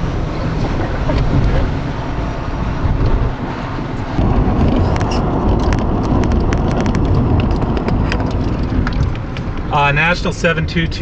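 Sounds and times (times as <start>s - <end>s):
car road and engine rumble: 0.0s - 11.0s
sharp clicks and ticks: 4.2s - 10.4s.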